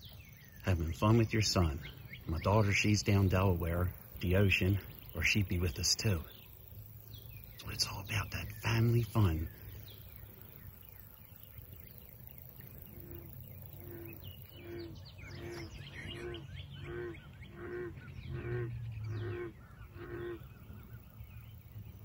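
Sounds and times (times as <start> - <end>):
small birds chirping: 0.0 - 22.0
steady low rumble: 0.0 - 22.0
animal calling: 12.7 - 20.8.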